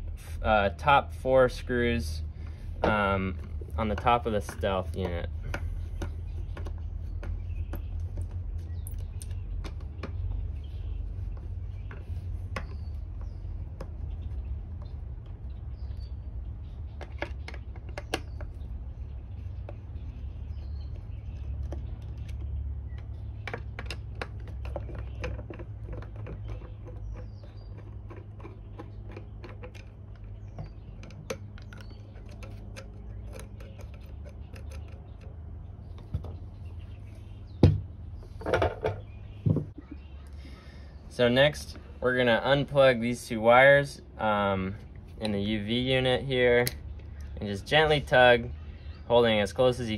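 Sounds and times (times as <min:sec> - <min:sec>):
parts being handled: 0:01.1 - 0:40.7.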